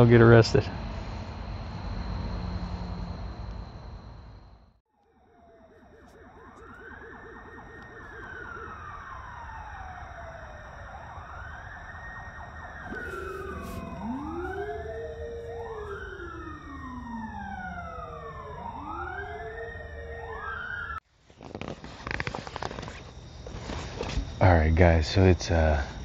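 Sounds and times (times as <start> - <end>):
police sirens wailing: 5.0 - 21.0.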